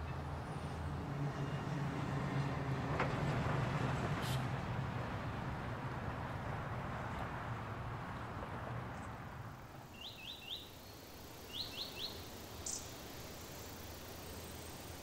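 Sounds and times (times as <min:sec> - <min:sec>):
steady background hiss: 0:09.0 - 0:15.0
bird chirping: 0:09.9 - 0:13.0.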